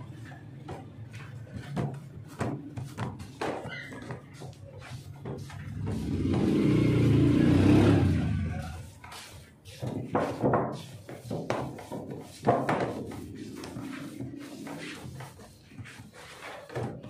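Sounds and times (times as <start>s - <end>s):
vehicle passing by: 5.6s - 8.9s.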